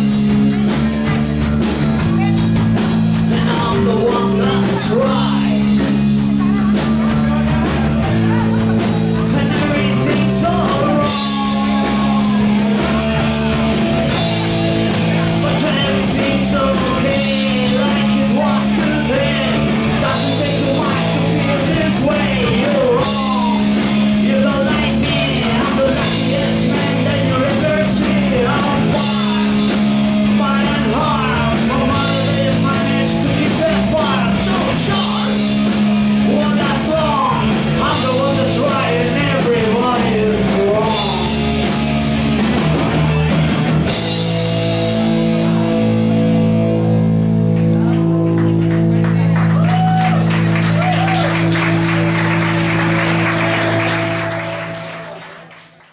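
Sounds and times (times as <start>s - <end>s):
drums: 0.0s - 55.9s
electric guitars playing chords: 0.0s - 55.9s
person singing: 2.0s - 41.8s.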